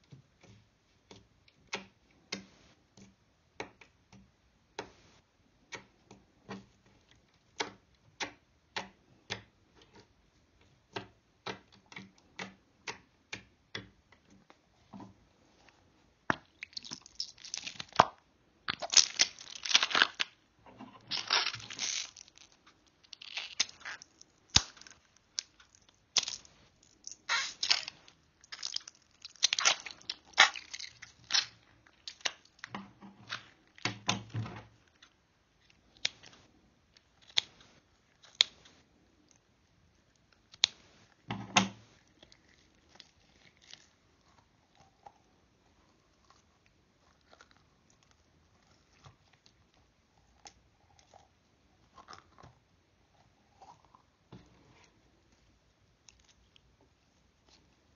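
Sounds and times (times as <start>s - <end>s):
slime squelching and crackling: 16.4s - 34.0s, 41.9s - 57.9s.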